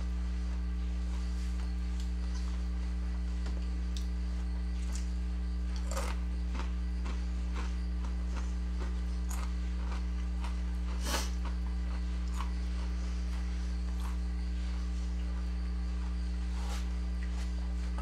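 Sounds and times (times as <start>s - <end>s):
low electrical hum: 0.0s - 18.0s
chips crunching: 5.7s - 13.0s.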